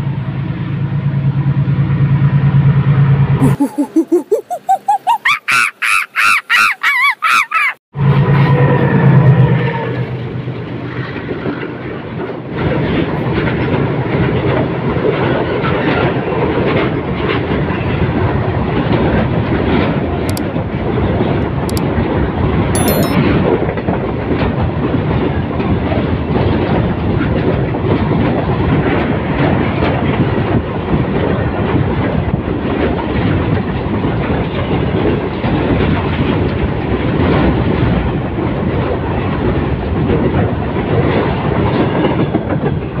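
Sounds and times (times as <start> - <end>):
freight train wheels on rails: 8.0 - 22.7, 23.5 - 43.0.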